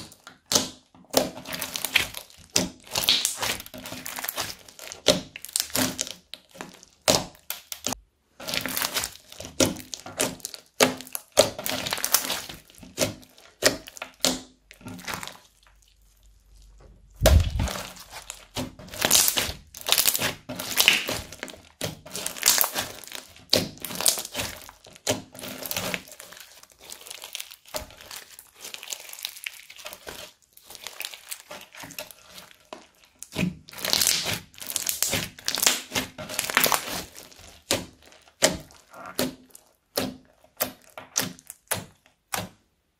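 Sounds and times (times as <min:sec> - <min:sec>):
crunchy slime crackling and popping: 0:00.0 - 0:42.9
dull thump: 0:17.2 - 0:17.7.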